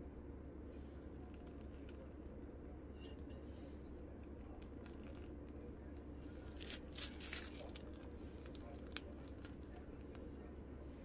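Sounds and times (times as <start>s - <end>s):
piping bag crinkling: 4.4s - 5.7s, 6.4s - 10.2s.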